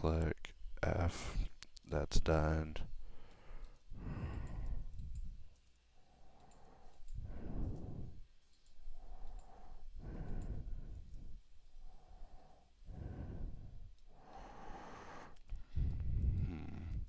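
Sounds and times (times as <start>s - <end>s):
breathing close to microphone: 3.0s - 8.3s, 8.9s - 17.0s
faint mouse clicks: 3.2s - 7.8s, 8.4s - 11.2s.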